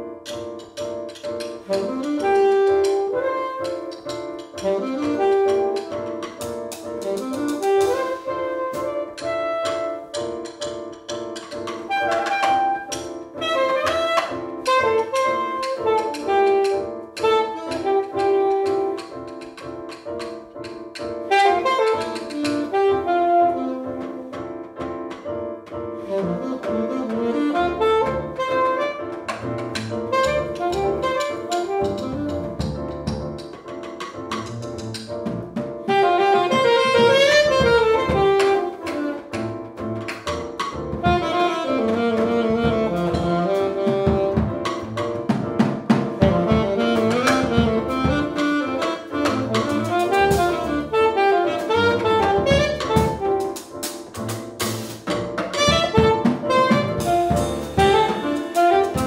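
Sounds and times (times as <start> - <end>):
drum kit with cymbals: 0.5 - 19.0, 26.0 - 59.0
saxophone melody: 1.6 - 10.7, 11.7 - 19.4, 21.2 - 24.4, 26.0 - 32.6, 35.8 - 39.8, 41.0 - 45.2, 46.2 - 54.0, 55.5 - 59.0
plucked double bass: 26.2 - 59.0.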